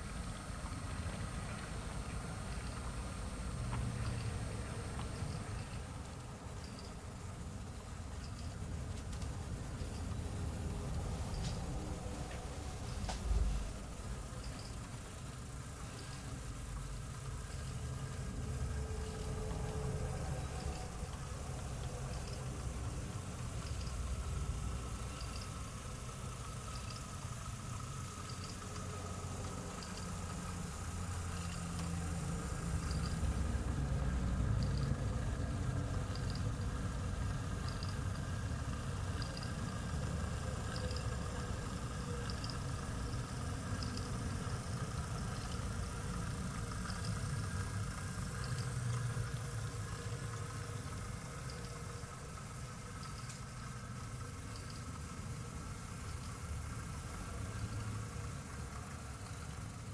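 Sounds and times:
model train rumble: 0.0 - 59.9
light ticks: 53.0 - 53.6, 54.5 - 55.0.

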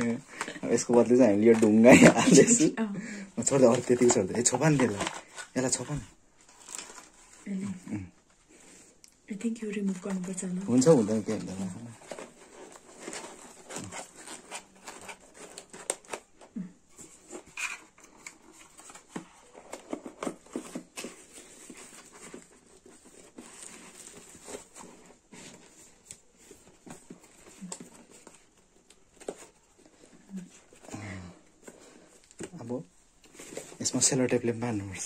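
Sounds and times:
plastic wrapping crinkling: 3.4 - 16.4.

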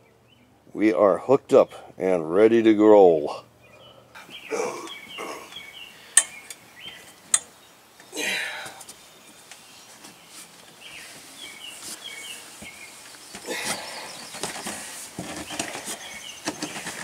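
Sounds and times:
birds chirping faintly: 0.0 - 17.0
scuffing rustle: 8.7 - 17.0.

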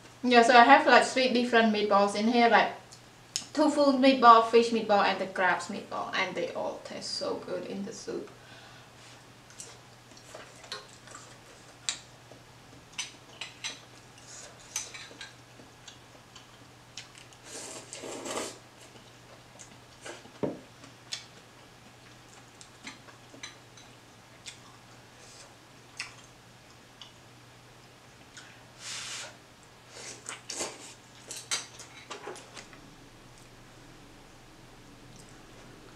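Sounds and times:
slurping noodles: 17.4 - 18.6.

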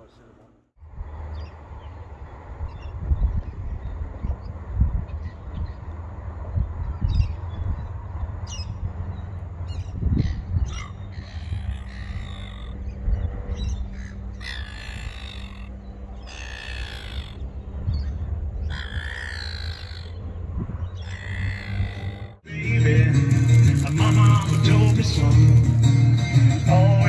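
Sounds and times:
crow cawing: 10.7 - 12.8, 13.9 - 17.4, 18.6 - 20.2, 21.0 - 22.4
short bird calls: 13.6 - 17.4, 18.0 - 20.2, 21.0 - 22.4.

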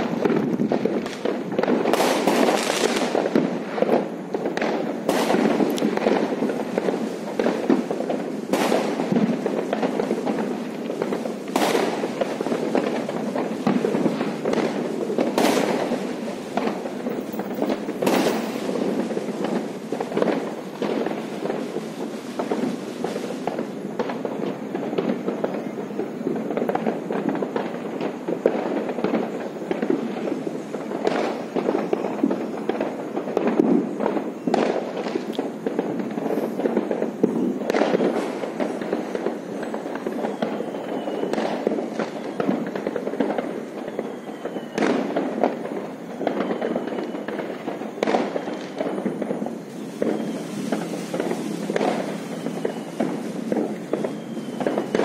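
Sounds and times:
firecrackers crackling: 0.0 - 55.0
firework bangs: 0.0 - 55.0
falling whistles: 37.2 - 55.0.

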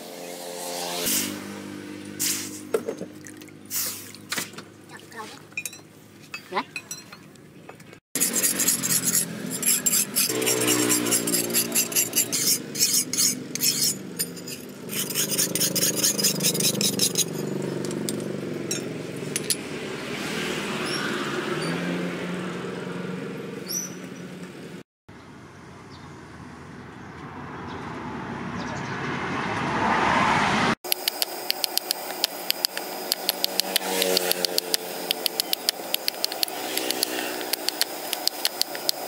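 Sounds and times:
engine humming: 7.2 - 39.0
sharpening stone rasping on blade: 8.2 - 17.5, 32.4 - 39.0.

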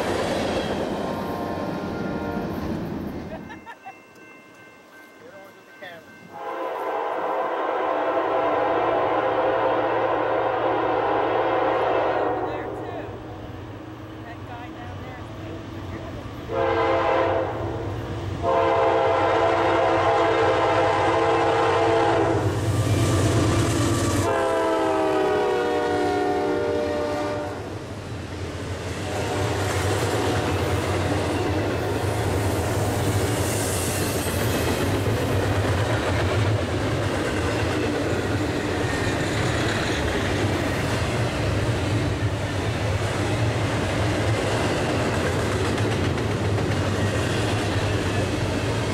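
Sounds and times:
train rumbling and clacking: 0.0 - 48.9
locomotive air horn: 6.3 - 12.5, 16.5 - 17.8, 18.4 - 23.4, 24.2 - 27.7, 29.0 - 29.7.

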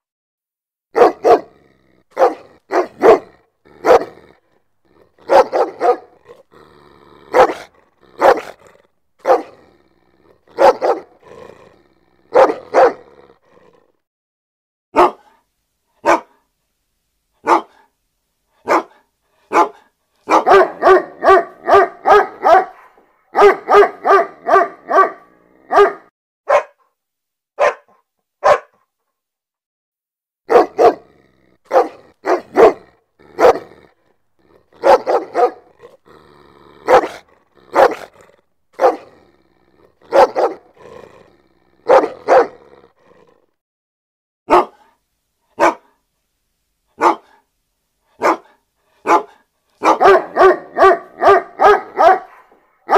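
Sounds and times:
dog barking: 0.9 - 4.4, 5.2 - 6.4, 7.3 - 9.7, 10.5 - 11.3, 12.3 - 13.2, 14.9 - 15.4, 16.0 - 16.5, 17.4 - 17.9, 18.6 - 26.9, 27.6 - 28.9, 30.5 - 31.1, 31.7 - 33.9, 34.6 - 36.0, 36.8 - 38.2, 38.8 - 39.2, 39.9 - 40.9, 41.8 - 42.7, 44.5 - 45.0, 45.6 - 46.0, 47.0 - 47.5, 48.1 - 52.9.

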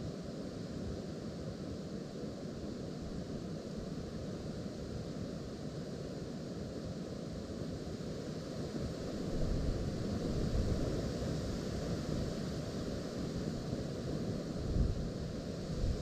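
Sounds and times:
gusty wind buffeting microphone: 14.3 - 16.0.

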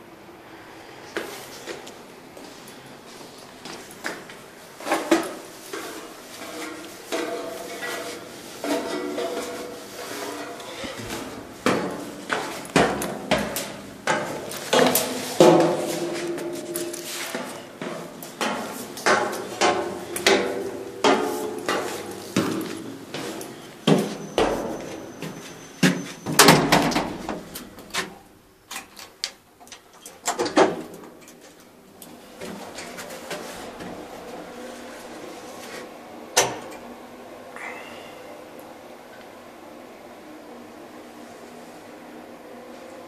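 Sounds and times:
footsteps on steel grating stairs: 1.1 - 28.2, 30.8 - 35.9
lift running hum: 6.6 - 28.5, 31.9 - 43.0.

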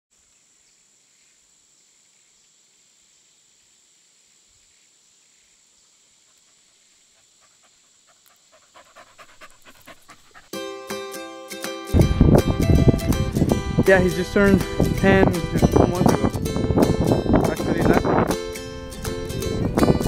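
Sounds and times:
dog panting: 6.3 - 10.6
music chord: 10.6 - 20.0.

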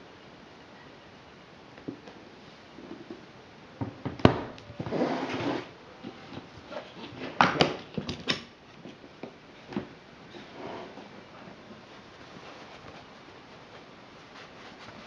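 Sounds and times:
case scraping: 4.7 - 5.7.

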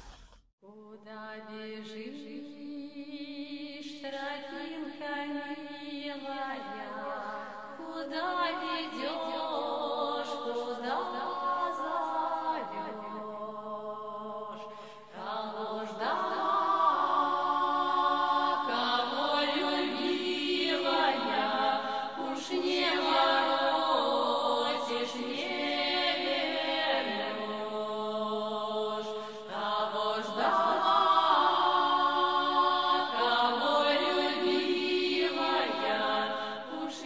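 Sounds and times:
chant-like singing: 0.6 - 37.0.

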